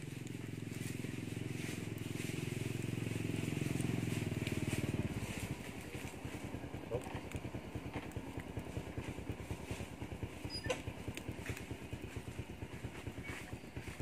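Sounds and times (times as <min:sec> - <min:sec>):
campfire crackling: 0:00.0 - 0:14.0
small motorbike engine idling: 0:00.0 - 0:14.0.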